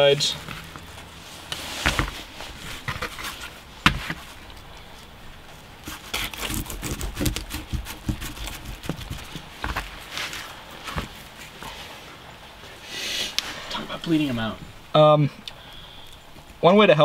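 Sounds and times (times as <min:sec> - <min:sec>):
fish shifting on cardboard: 0:00.3 - 0:04.4, 0:05.8 - 0:11.8.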